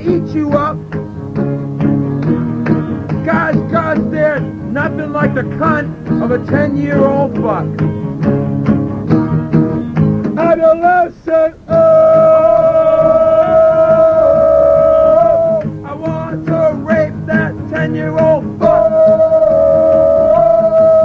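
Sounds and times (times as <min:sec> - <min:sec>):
man singing: 0:00.0 - 0:00.8, 0:03.2 - 0:07.7, 0:10.4 - 0:21.0
acoustic guitar strumming: 0:00.0 - 0:21.0.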